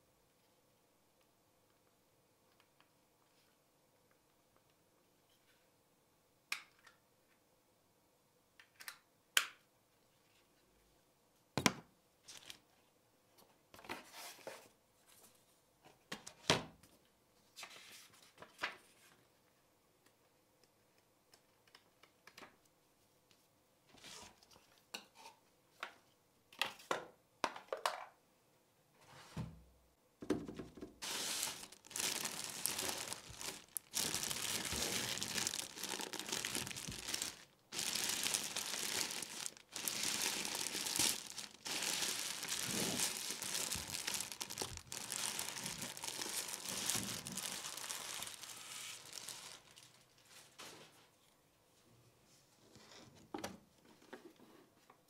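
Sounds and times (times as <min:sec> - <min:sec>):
paper pages flipping: 0:31.0 - 0:49.9
plastic bag crinkling: 0:31.0 - 0:50.5.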